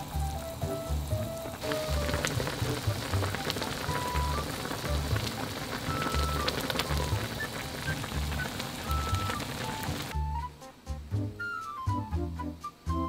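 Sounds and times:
broth bubbling in a pot: 0.0s - 10.2s.

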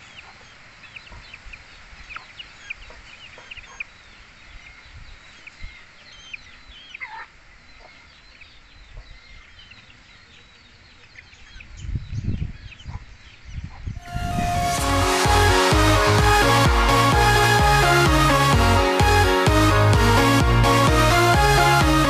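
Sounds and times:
chicks peeping and clucking: 0.0s - 14.0s
electronic music: 14.0s - 22.0s.

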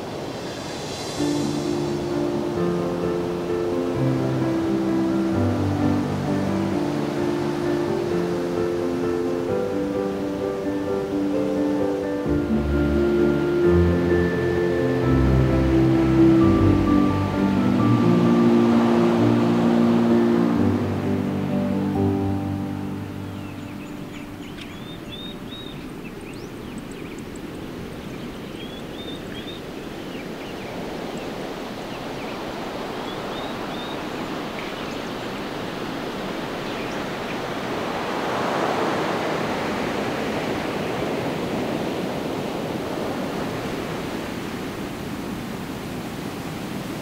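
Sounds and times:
steady rushing noise: 0.0s - 47.0s
bird chirping: 23.1s - 35.6s, 36.6s - 37.5s.

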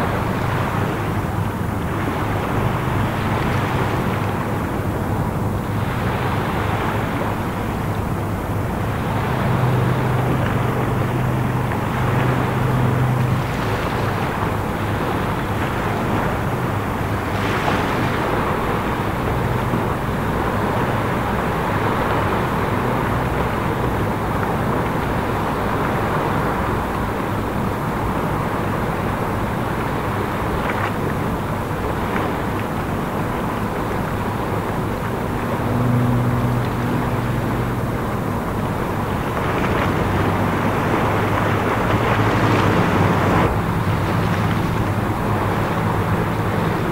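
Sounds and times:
boat engine hum: 0.0s - 46.9s
wind on microphone: 31.3s - 46.9s
bow wave rushing: 32.9s - 46.9s.

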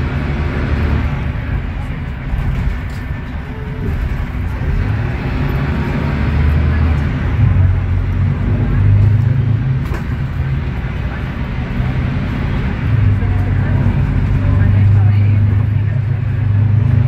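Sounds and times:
bus diesel engine running: 0.0s - 17.0s.

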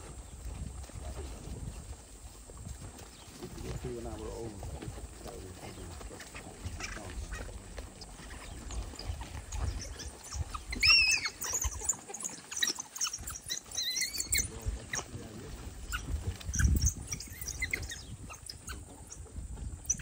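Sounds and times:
wild dogs scuffling and twittering: 0.0s - 20.0s
high-pitched squealing call: 6.4s - 19.2s.

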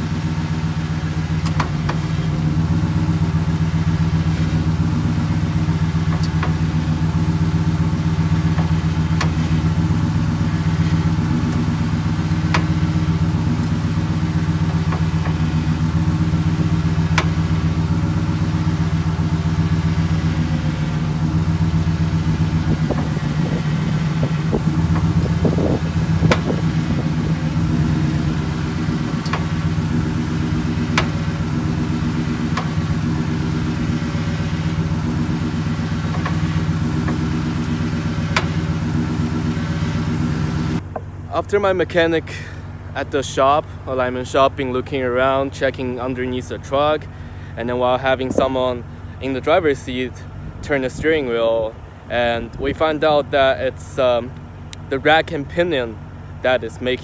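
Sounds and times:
truck engine idling: 0.0s - 57.0s
sharp pops from steering rack: 1.3s - 2.4s, 4.1s - 41.1s.

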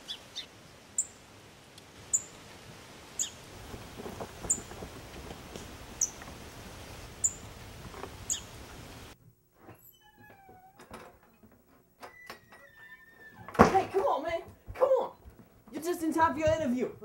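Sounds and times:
bird chirping: 0.0s - 1.2s, 2.1s - 2.4s, 3.2s - 3.4s, 5.9s - 6.2s, 7.2s - 7.6s, 8.2s - 8.6s
outdoor hiss: 0.0s - 17.0s
faint rustling: 2.4s - 9.8s.

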